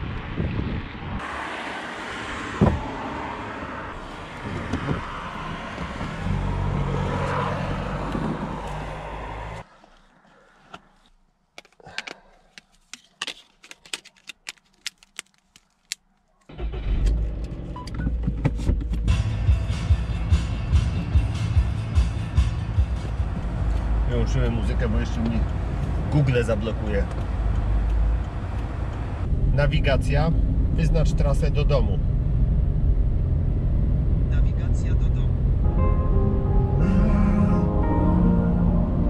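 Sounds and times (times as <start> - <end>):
outdoor background noise: 0.0 - 35.6
low hum: 35.3 - 39.0.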